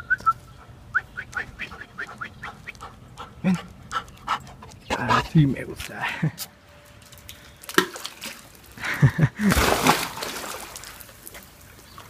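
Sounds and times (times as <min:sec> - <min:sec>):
water sloshing: 0:07.1 - 0:08.8, 0:09.4 - 0:12.0
dog splashing into pool: 0:09.4 - 0:11.6.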